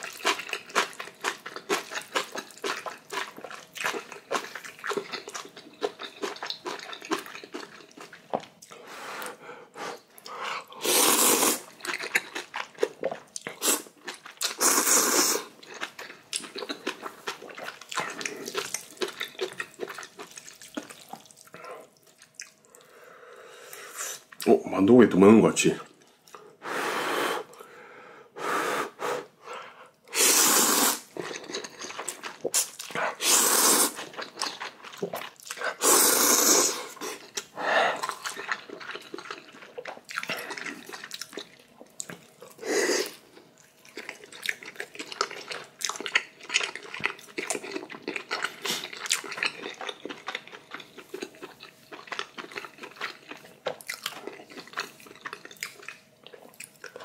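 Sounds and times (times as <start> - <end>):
wet chewing with clicks: 0.0 - 8.8, 11.6 - 14.7, 15.5 - 22.9, 31.1 - 33.2, 33.9 - 35.8, 36.9 - 57.0
slurping noodles: 9.2 - 11.8, 13.5 - 15.6, 30.1 - 39.5, 42.6 - 43.2.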